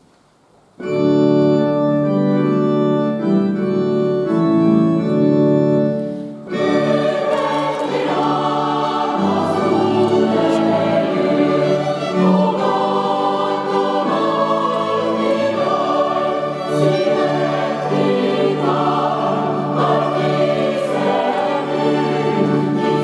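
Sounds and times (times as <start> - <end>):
keyboard organ-like chords: 0.8 - 23.0
choir singing: 6.5 - 23.0
violins and cello playing: 6.5 - 23.0.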